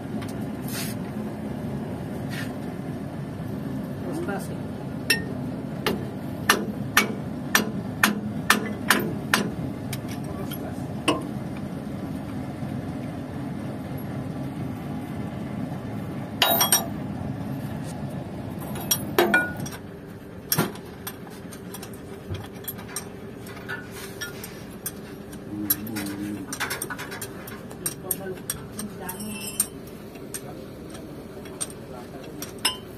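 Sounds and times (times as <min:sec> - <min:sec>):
wrench clanking on metal: 0:16.4 - 0:16.9, 0:18.6 - 0:19.8, 0:20.5 - 0:25.0, 0:25.6 - 0:32.9.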